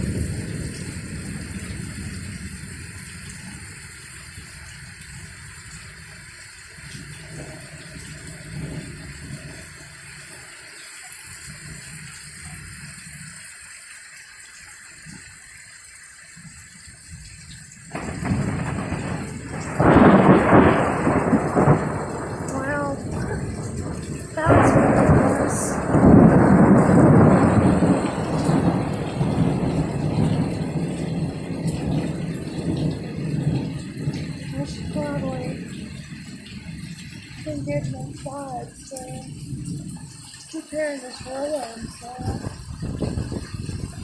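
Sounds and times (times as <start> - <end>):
loud thunderclap: 0.0 - 6.0, 7.0 - 9.7, 17.9 - 44.0
low thunder rumbling: 0.0 - 10.4, 17.0 - 44.0
heavy rain falling: 0.0 - 44.0.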